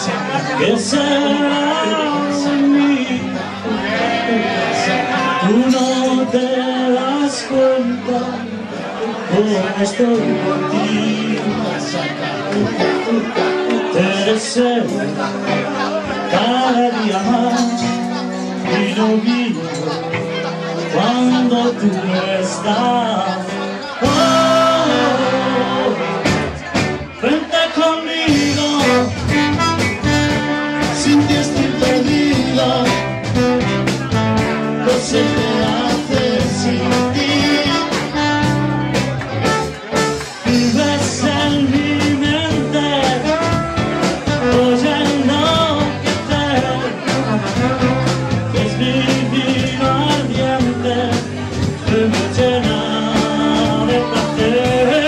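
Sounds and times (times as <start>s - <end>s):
electric guitars: 0.0s - 55.0s
steady drum beat: 24.0s - 25.4s, 26.2s - 27.1s, 28.3s - 55.0s
trombone melody: 28.3s - 50.1s.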